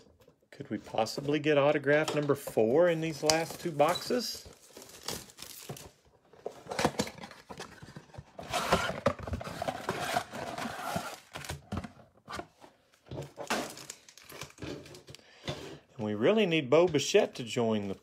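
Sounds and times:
cardboard box and foil rustling: 3.0 - 11.7.

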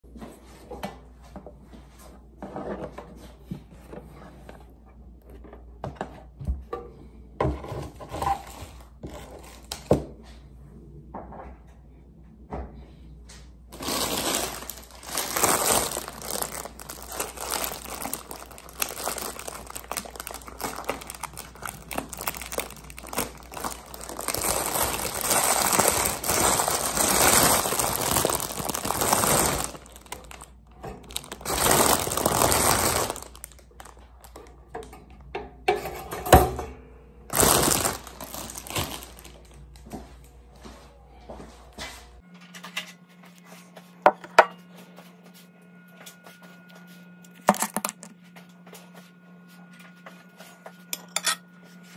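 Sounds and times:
plastic bag crinkling: 8.1 - 9.9, 13.7 - 34.5, 37.3 - 39.8.

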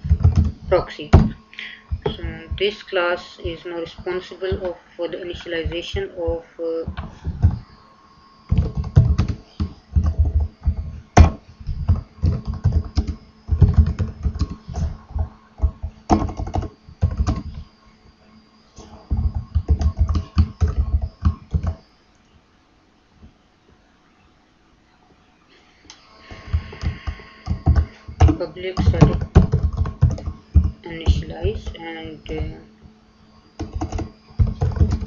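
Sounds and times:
typing on keyboard: 11.9 - 14.6, 26.8 - 31.6, 33.6 - 35.0.

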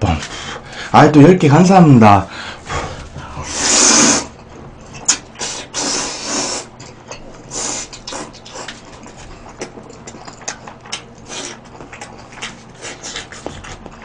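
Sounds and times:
person slurping noodles: 2.8 - 4.4, 5.1 - 6.8, 7.5 - 8.8
wet chewing with lip smacks: 4.4 - 5.8, 6.6 - 14.0.

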